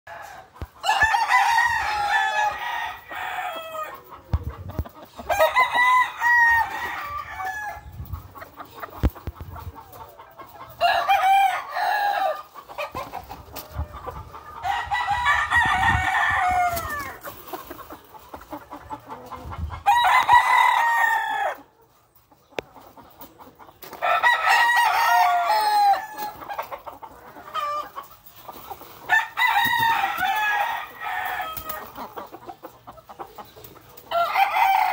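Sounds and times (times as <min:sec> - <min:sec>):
roosters crowing: 0:00.1 - 0:04.2, 0:05.1 - 0:08.1, 0:10.7 - 0:13.1, 0:14.0 - 0:17.3, 0:19.7 - 0:21.7, 0:23.9 - 0:28.1, 0:29.0 - 0:32.2, 0:34.0 - 0:34.9.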